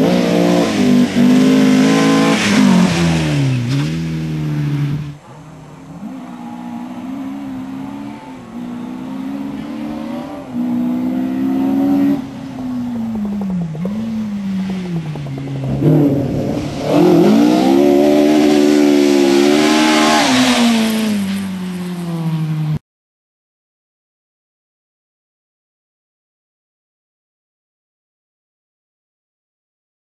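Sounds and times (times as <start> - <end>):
rally car engines revving: 0.0 - 22.8
rally car passing at high revs: 0.0 - 22.8.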